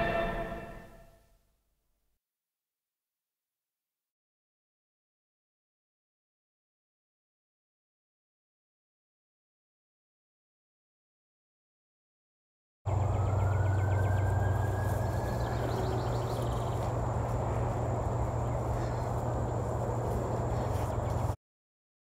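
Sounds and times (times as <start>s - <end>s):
insect chirping: 12.9s - 21.3s
faint whine: 12.9s - 21.4s
insect drone: 12.9s - 21.4s.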